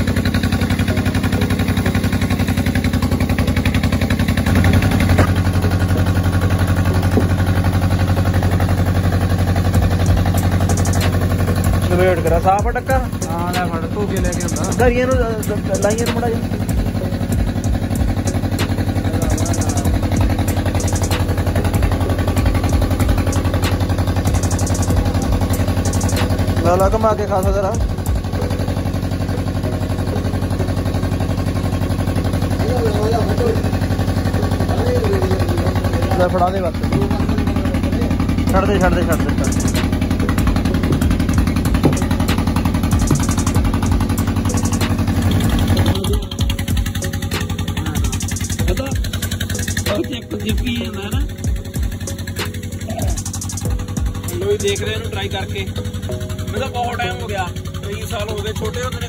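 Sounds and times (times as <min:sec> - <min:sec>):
engine running with low thumping: 0:00.0 - 0:59.0.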